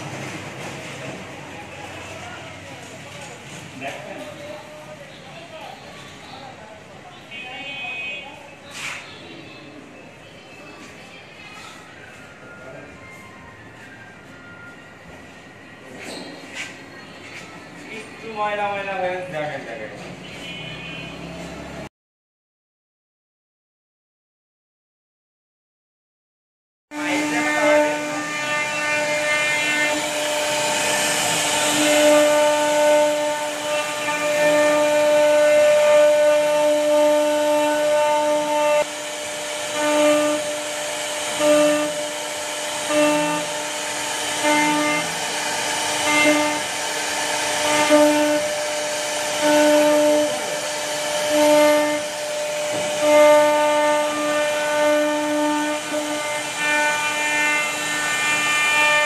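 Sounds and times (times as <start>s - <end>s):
hiss of wood being cut: 27.0s - 58.9s
router spindle whine: 27.0s - 59.0s.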